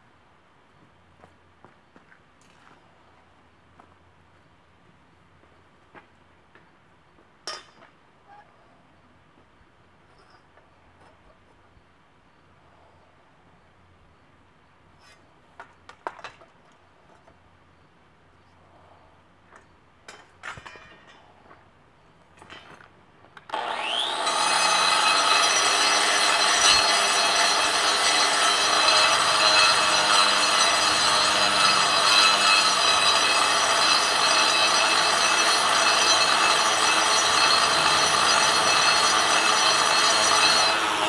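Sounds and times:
angle grinder grinding stone: 0:23.5 - 0:41.0.

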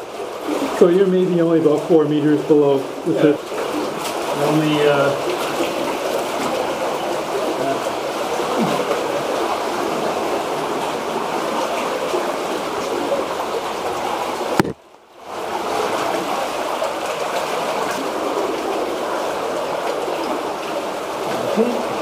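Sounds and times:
stream water rushing: 0:00.0 - 0:22.0.

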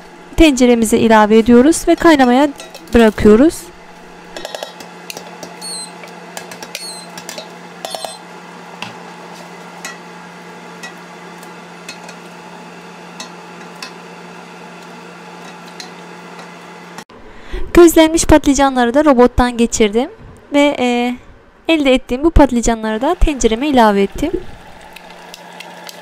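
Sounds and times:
utensils clinking in metal pot: 0:01.9 - 0:03.0, 0:06.5 - 0:08.2, 0:11.9 - 0:12.2
spoon scraping glass bowl: 0:07.8 - 0:08.2.

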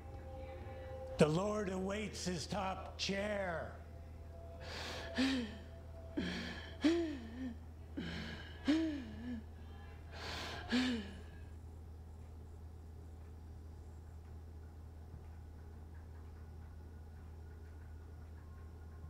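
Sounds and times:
low steady hum: 0:00.0 - 0:19.0
person gasping: 0:04.6 - 0:09.5, 0:10.2 - 0:11.4.

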